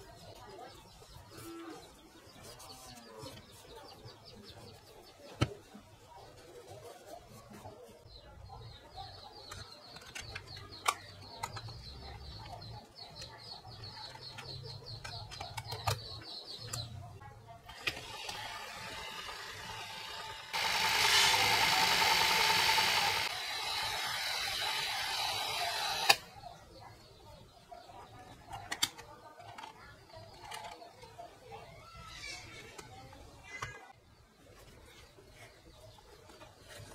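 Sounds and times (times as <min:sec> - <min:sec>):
tape rewinder motor whirring: 0:17.7 - 0:26.3.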